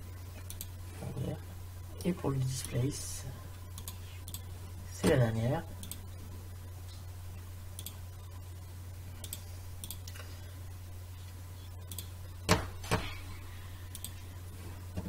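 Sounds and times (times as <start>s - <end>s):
low electrical hum: 0.0s - 15.0s
computer mouse clicking: 0.4s - 0.8s, 3.7s - 4.5s, 7.8s - 8.0s, 9.2s - 10.2s, 11.8s - 12.1s, 13.9s - 14.2s.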